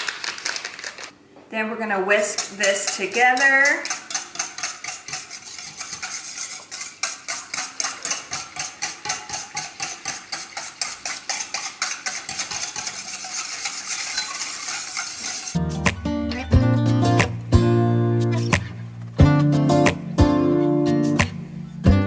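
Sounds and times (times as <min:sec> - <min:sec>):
whisk clicking against metal bowl: 0:02.2 - 0:15.6
acoustic guitar music: 0:15.6 - 0:22.0.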